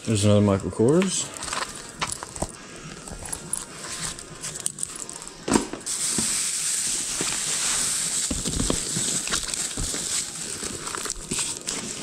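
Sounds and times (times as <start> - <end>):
steady hiss: 0.0 - 12.0
clothes rustling in plastic tub: 5.9 - 12.0.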